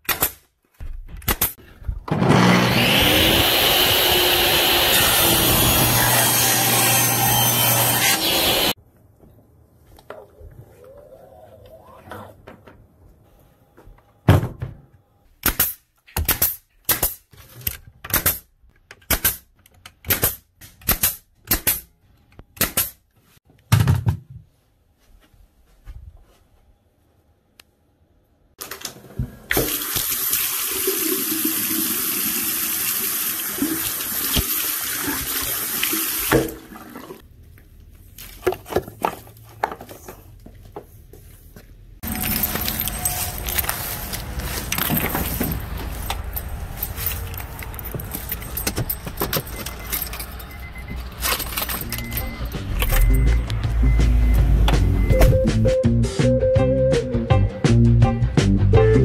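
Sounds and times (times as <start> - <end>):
pneumatic nailer firing: 1.2 - 3.7.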